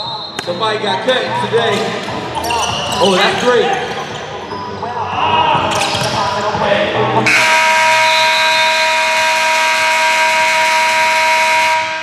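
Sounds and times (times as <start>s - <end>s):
court noise: 0.0s - 11.1s
scoreboard buzzer blast: 7.3s - 12.0s.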